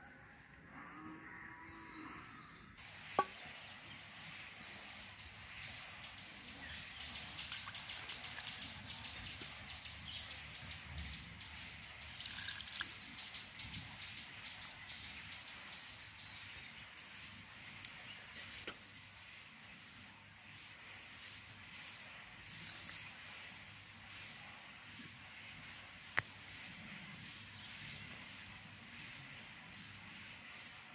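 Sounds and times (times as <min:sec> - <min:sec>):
sharp knock on clay bowl: 0:03.2 - 0:03.4
hand mixing wet batter: 0:06.8 - 0:09.4, 0:12.1 - 0:13.0
water pouring into bowl: 0:07.0 - 0:09.1, 0:12.1 - 0:13.0.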